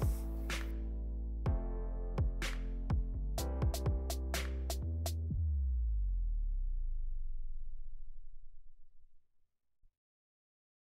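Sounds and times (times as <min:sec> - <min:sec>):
low beat: 0:00.0 - 0:05.8
electronic music: 0:00.0 - 0:06.0.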